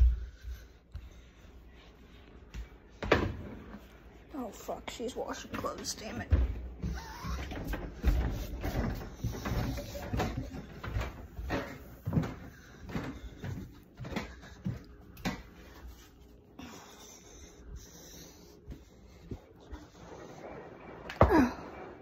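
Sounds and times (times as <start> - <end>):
footsteps going down stairs: 0.0 - 22.0.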